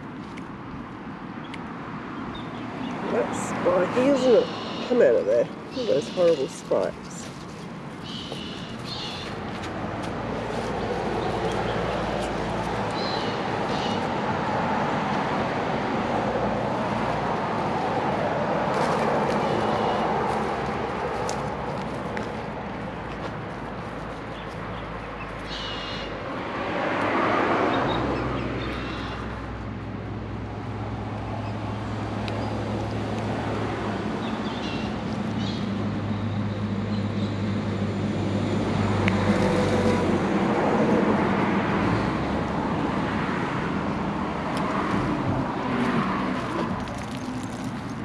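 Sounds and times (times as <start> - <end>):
puppy rustling through dry leaves: 18.2 - 26.0, 45.6 - 48.0.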